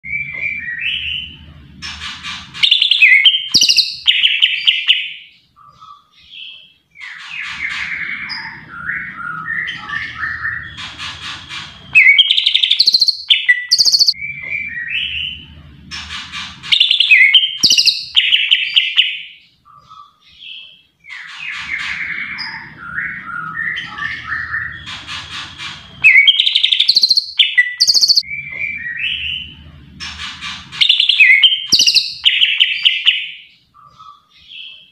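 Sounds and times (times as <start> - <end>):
low hum: 0.0 - 2.6, 7.7 - 12.1, 14.1 - 17.1, 21.7 - 26.1, 28.2 - 31.1
bird singing whistles and chirps: 0.1 - 2.0, 2.6 - 29.6, 30.2 - 34.8.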